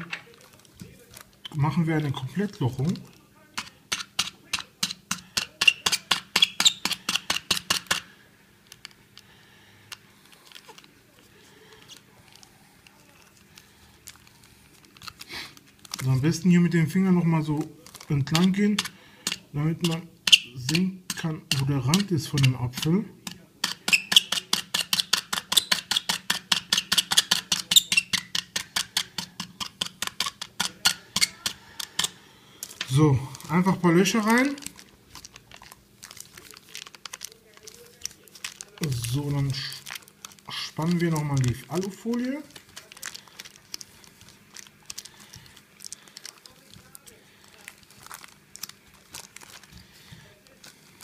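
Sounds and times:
faint steady hum: 0.0s - 51.0s
tool piercing foil clicks: 3.6s - 8.1s, 17.9s - 32.8s
needle punching foil ticks: 17.8s - 51.0s.

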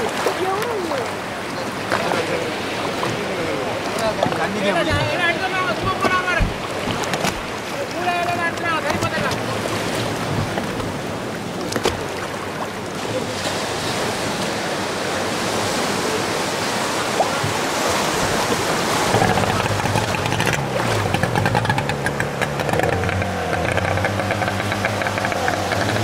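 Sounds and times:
sea water splashing around boats: 0.0s - 26.0s
boat engine chugging: 4.2s - 7.0s, 18.2s - 26.0s.

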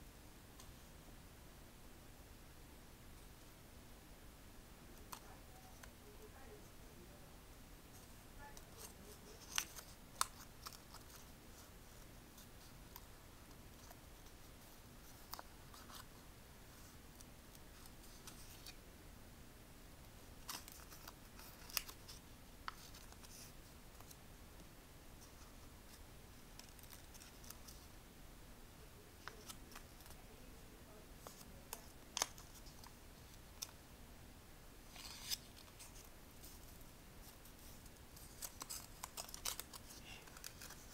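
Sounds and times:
quiet background hiss: 0.0s - 40.9s
paper crinkling and creasing: 8.6s - 13.1s, 20.4s - 24.2s, 26.6s - 27.9s, 29.2s - 30.2s, 34.9s - 40.9s
paper snap: 38.2s - 40.9s.

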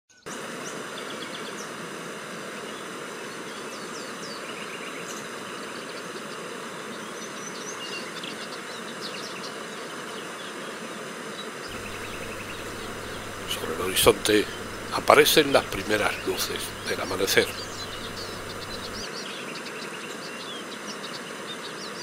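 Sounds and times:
bird chirps and trills: 11.7s - 19.0s
insects humming: 11.7s - 19.0s.

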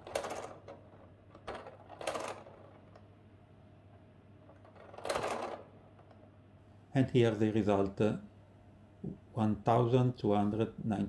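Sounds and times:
mechanical calculator gears clattering: 0.0s - 0.8s, 1.4s - 3.0s, 4.6s - 5.7s.

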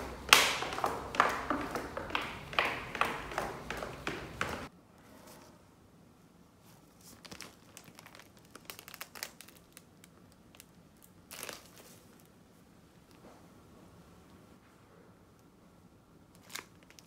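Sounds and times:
footsteps on concrete stairs: 0.0s - 4.7s
cellophane wrapper crinkling: 7.0s - 12.3s, 16.3s - 17.0s.

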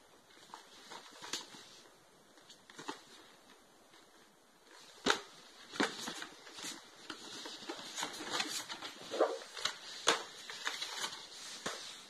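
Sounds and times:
packaging crinkling and rustling: 4.0s - 12.0s.

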